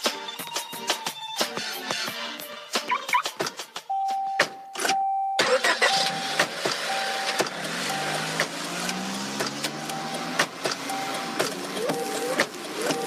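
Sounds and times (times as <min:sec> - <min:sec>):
car warning chime dinging: 0:03.9 - 0:13.0
car engine starting and revving: 0:05.4 - 0:13.0.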